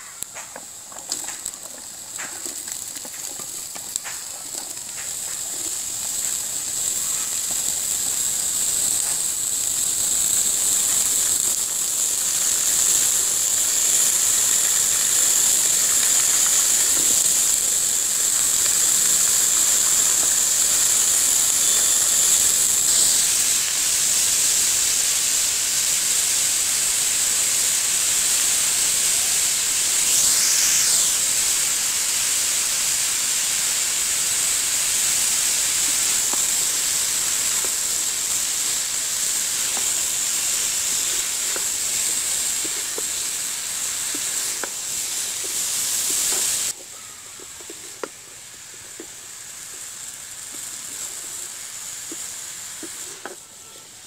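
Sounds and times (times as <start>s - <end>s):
high-pitched oil sizzle: 0.0s - 54.0s.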